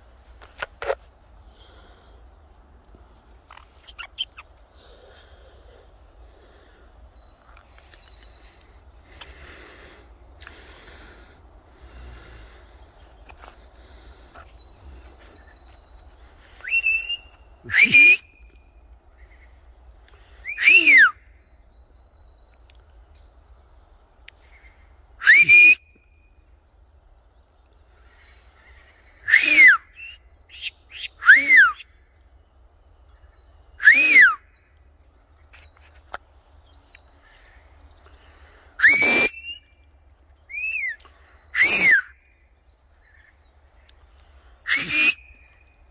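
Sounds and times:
parrots whistling calls: 16.6s - 18.4s, 20.5s - 21.1s, 25.2s - 25.8s, 29.3s - 31.9s, 33.8s - 34.5s, 38.8s - 39.6s, 41.6s - 42.1s, 44.7s - 45.5s
parrot short chirps: 38.8s - 39.6s, 41.6s - 42.1s, 44.7s - 45.4s.

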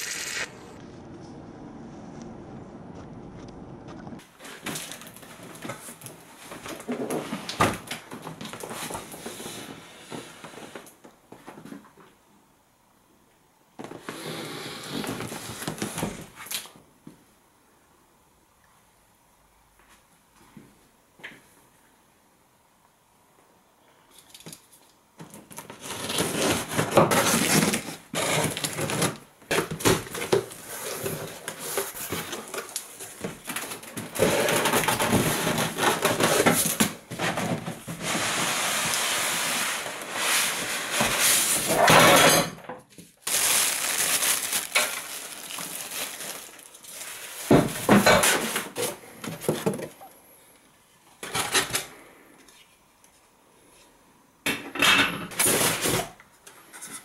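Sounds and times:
cardboard and foam packing handled: 4.2s - 12.0s, 13.8s - 16.7s, 25.2s - 42.0s, 42.9s - 50.1s.

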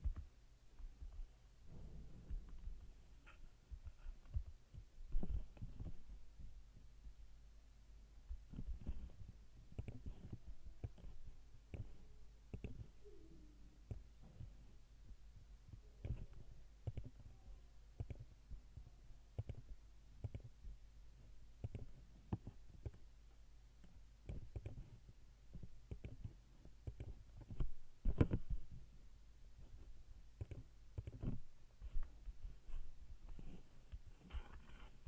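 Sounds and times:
low steady hum: 0.0s - 35.0s
mouse and keyboard clicks: 8.5s - 13.0s, 16.0s - 17.3s, 18.0s - 18.3s, 19.4s - 20.5s, 21.6s - 23.0s, 23.8s - 25.0s, 25.6s - 28.5s, 30.4s - 31.4s.

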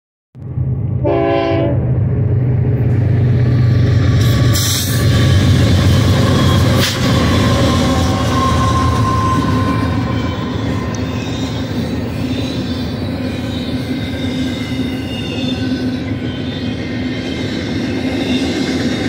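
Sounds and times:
diesel locomotives rumbling: 0.4s - 19.0s
train horn blast: 1.0s - 1.9s.

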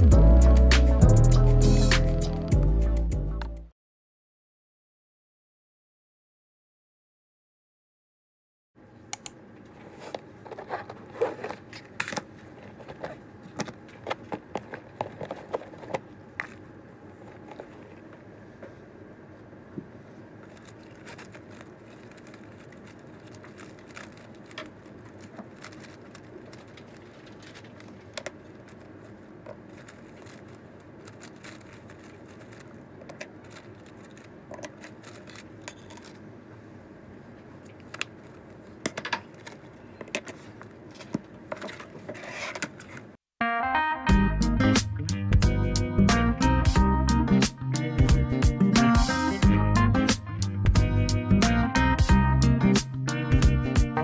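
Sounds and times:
room noise: 8.8s - 43.2s.

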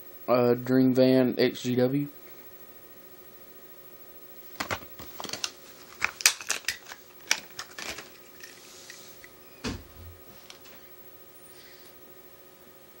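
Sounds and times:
plastic blister pack crackling: 4.5s - 9.0s.

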